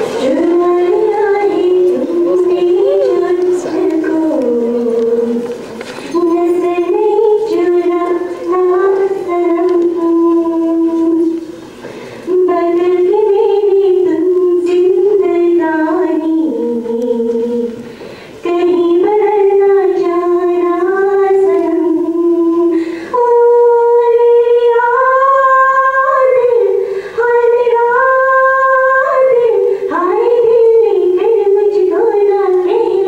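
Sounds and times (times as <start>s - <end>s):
singer breathing: 11.7s - 12.3s, 17.8s - 18.4s, 22.7s - 23.2s, 26.8s - 27.2s.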